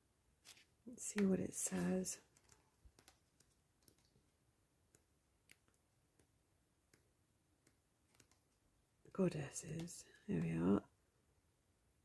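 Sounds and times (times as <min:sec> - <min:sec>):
pages being leafed through: 0:00.4 - 0:00.7.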